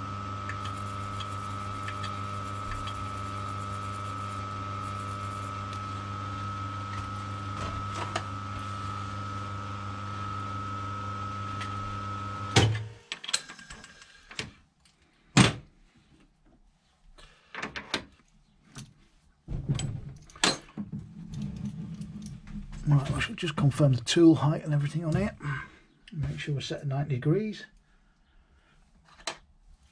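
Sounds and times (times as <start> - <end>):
lathe motor humming: 0.0 - 12.6.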